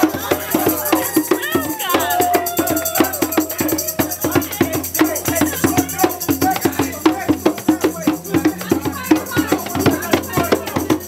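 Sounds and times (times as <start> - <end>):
hand drums playing: 0.0 - 11.0.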